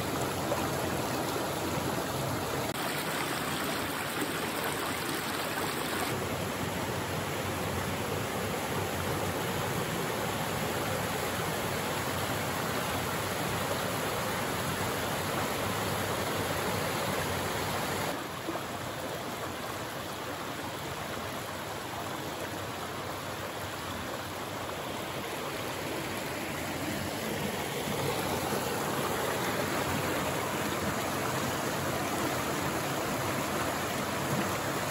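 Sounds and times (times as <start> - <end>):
stream flowing over rock: 0.0 - 6.3, 23.6 - 34.9.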